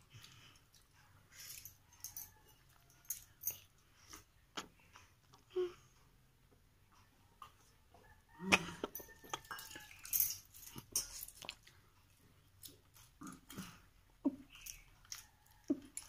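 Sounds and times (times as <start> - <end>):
wet chewing noises: 8.5 - 10.1, 10.7 - 16.0
metal tumbler clink: 8.9 - 11.4.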